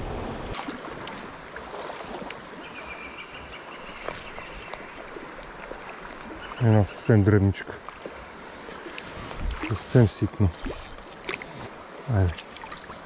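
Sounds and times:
river flowing over stones: 0:00.0 - 0:02.9, 0:03.6 - 0:13.0
light clicks: 0:04.0 - 0:05.1.

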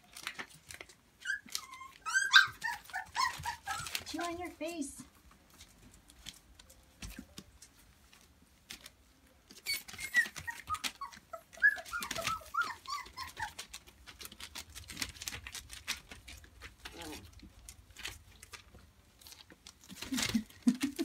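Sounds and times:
paws scrabbling on plastic: 0:00.0 - 0:21.0
puppies whimpering and yelping: 0:01.2 - 0:04.2, 0:09.5 - 0:15.4.

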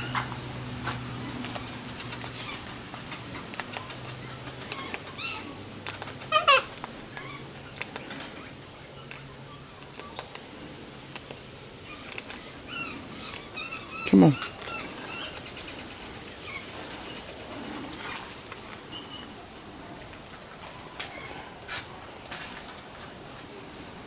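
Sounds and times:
beak cracking seed clicks: 0:01.4 - 0:01.6, 0:02.2 - 0:05.0, 0:05.8 - 0:08.1, 0:12.1 - 0:12.4.

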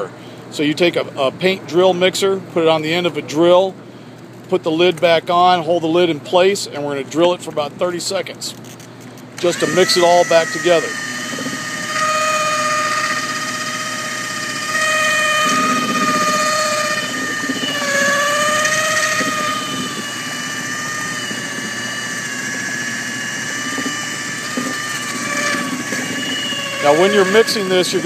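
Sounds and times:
electric drill motor whine: 0:09.3 - 0:28.0.

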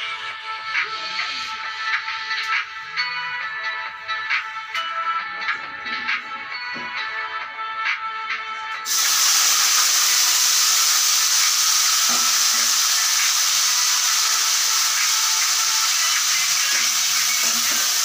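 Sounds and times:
background music: 0:00.0 - 0:18.0
food sizzling in hot oil: 0:08.9 - 0:18.0.

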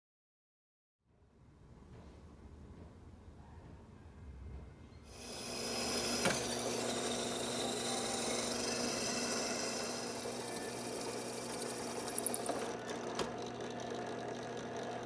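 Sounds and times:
drill bit chattering: 0:05.2 - 0:12.7
drill press running: 0:05.2 - 0:15.0.

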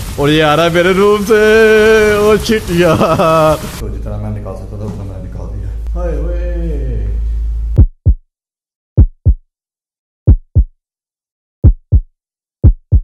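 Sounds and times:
heartbeat thumps: 0:07.7 - 0:08.2, 0:09.0 - 0:09.4, 0:10.3 - 0:10.7, 0:11.6 - 0:13.0.

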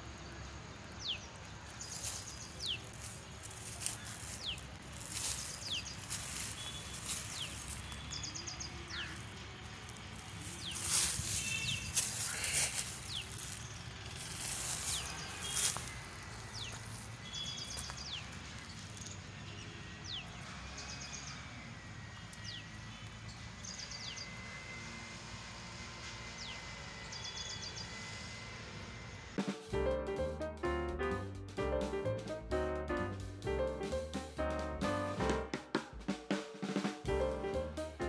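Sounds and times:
birds calling: 0:00.0 - 0:21.5
rustles: 0:00.8 - 0:19.3
piano music: 0:29.4 - 0:38.0.

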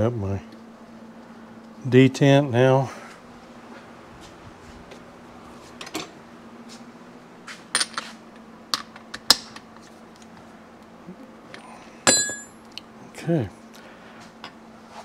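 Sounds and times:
metal tools clinking: 0:12.1 - 0:12.6.

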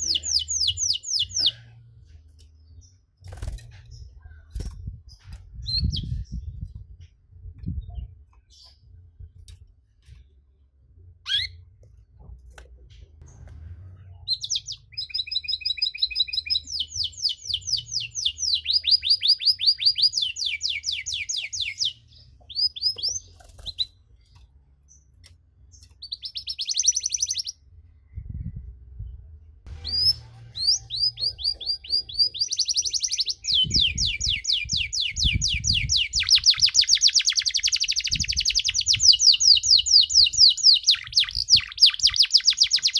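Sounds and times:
canary trilling: 0:11.2 - 0:11.6, 0:14.3 - 0:24.0, 0:29.7 - 0:42.9.

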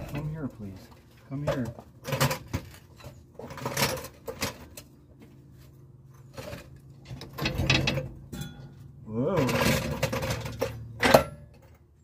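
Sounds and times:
metal axle rattling on floor jack: 0:06.4 - 0:08.8.

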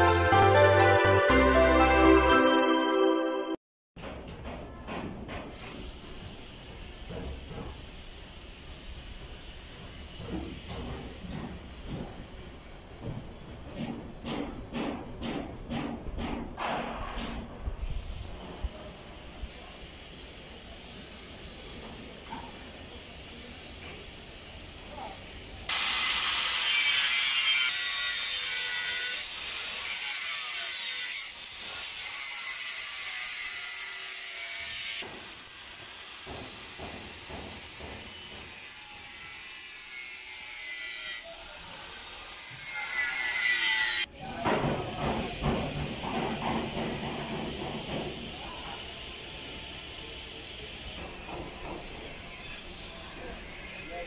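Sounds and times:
high hissing tool noise: 0:05.6 - 0:13.0, 0:17.8 - 0:44.1, 0:44.9 - 0:54.0.

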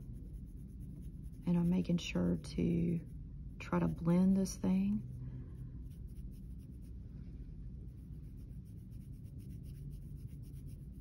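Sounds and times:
pencil scratching on paper: 0:07.8 - 0:11.0.

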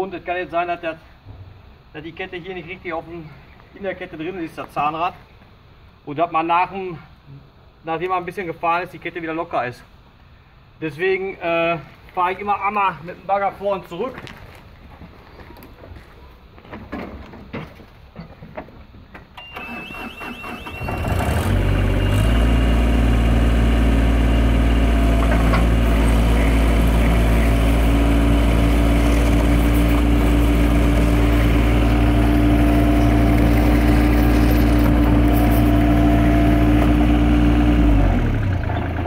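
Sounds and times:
excavator diesel engine revving: 0:19.5 - 0:39.0.

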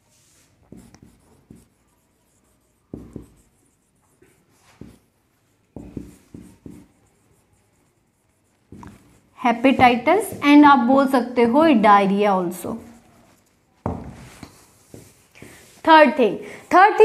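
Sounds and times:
marker writing on whiteboard: 0:00.1 - 0:17.0.

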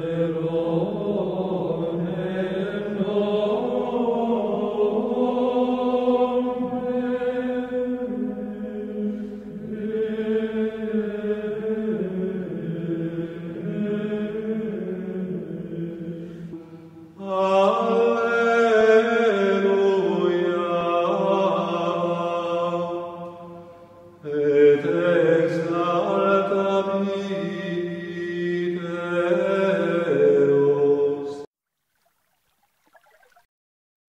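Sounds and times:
voices singing a slow chant: 0:00.0 - 0:31.5.

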